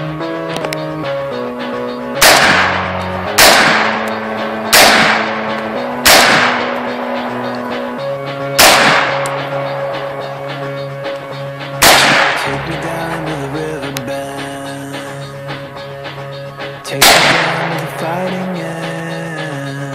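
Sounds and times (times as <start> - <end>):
background music: 0.0 - 19.9
rifle shots: 2.2 - 7.2, 8.6 - 9.4, 11.8 - 12.5, 17.0 - 17.8.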